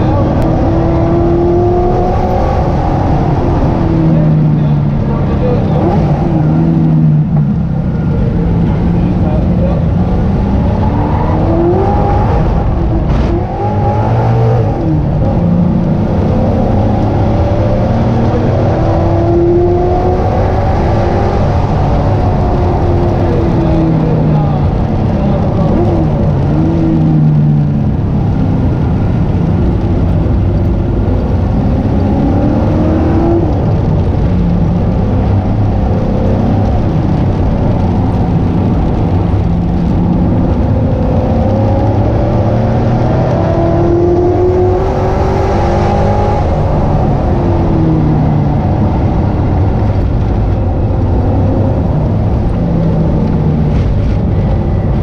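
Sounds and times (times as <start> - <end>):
car engine accelerating and shifting: 0.0 - 55.0
road and tyre noise: 0.0 - 55.0.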